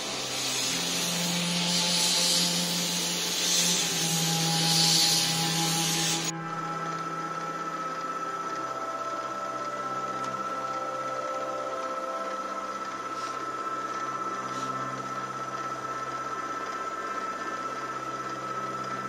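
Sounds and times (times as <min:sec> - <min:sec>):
belt grinder grinding metal: 0:00.0 - 0:06.3
end mill cutting metal plate: 0:00.0 - 0:19.0.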